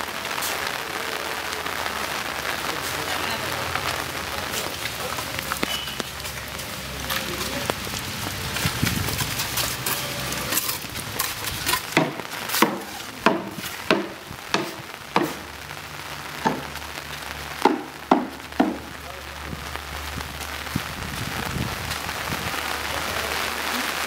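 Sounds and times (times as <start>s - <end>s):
steady rain hiss: 0.0s - 24.0s.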